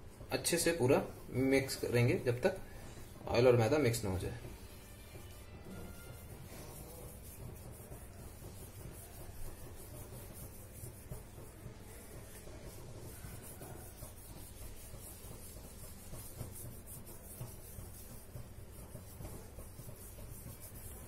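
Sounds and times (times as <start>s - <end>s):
spoon scraping dough: 3.9s - 21.0s.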